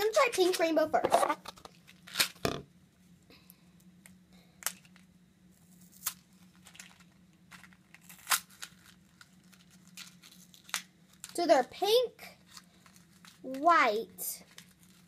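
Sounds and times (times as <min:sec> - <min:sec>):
faint steady hum: 0:00.0 - 0:15.0
clicks and crinkles: 0:03.9 - 0:05.1, 0:05.8 - 0:11.4, 0:12.4 - 0:13.7, 0:14.4 - 0:15.0.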